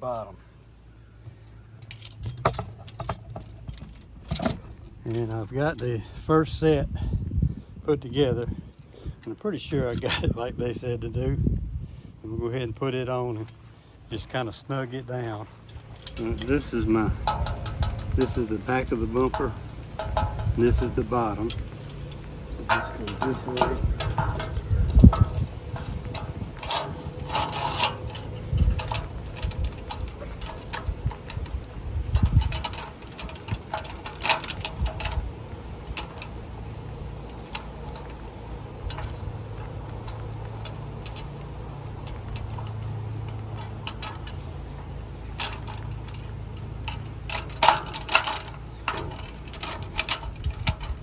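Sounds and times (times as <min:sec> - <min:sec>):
steady low hum: 0:00.0 - 0:51.0
metal clinks and knocks: 0:01.7 - 0:06.0, 0:15.0 - 0:51.0.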